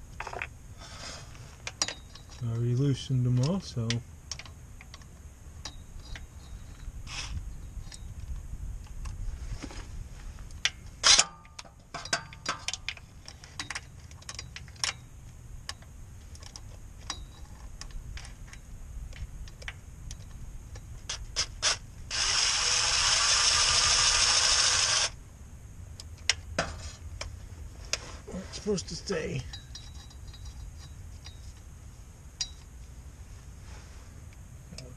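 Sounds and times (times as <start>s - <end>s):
power drill running: 21.6s - 25.2s.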